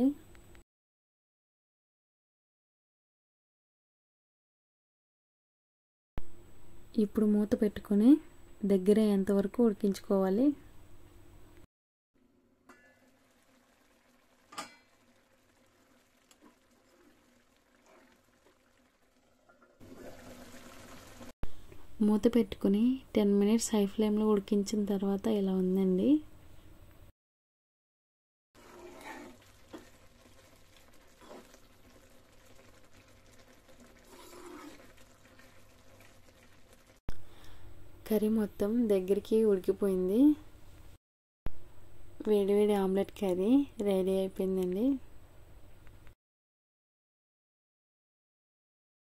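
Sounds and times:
curry bubbling softly: 0:13.0 - 0:21.4, 0:28.6 - 0:37.0
spoon scraping a pan: 0:28.6 - 0:29.9, 0:34.0 - 0:35.0.

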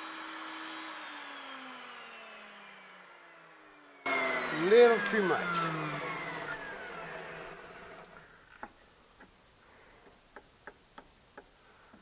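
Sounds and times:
power tool coasting down: 0:00.0 - 0:09.3.

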